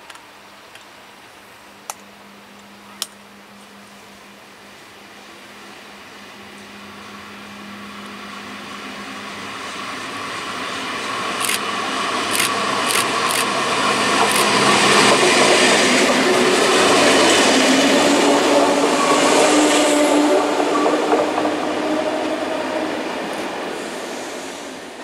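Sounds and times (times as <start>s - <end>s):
train wheels on rail: 4.8s - 25.0s
train motor whine: 6.3s - 23.5s.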